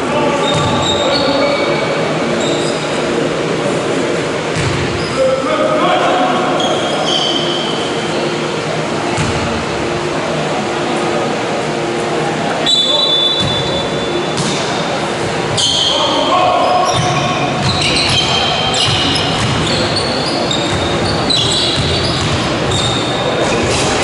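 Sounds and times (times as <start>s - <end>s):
shoes squeaking on hall floor: 0.3s - 3.2s, 4.6s - 5.3s, 6.5s - 8.5s, 12.6s - 24.0s
basketball bouncing: 4.5s - 4.9s, 14.4s - 14.6s, 16.9s - 20.0s, 20.6s - 22.6s.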